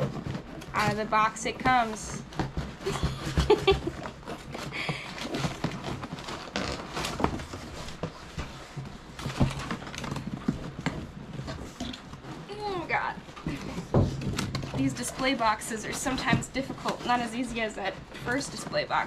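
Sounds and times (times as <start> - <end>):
cardboard knocking and scraping: 0.0 - 19.0
woman laughing: 2.8 - 4.0
tissue paper crinkling: 4.4 - 13.6.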